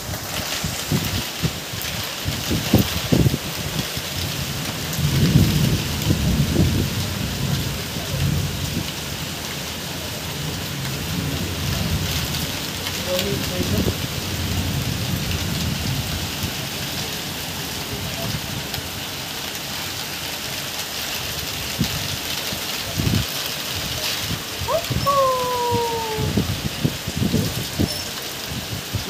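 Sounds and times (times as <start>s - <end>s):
heavy rain on tiled roofs: 0.0s - 29.0s.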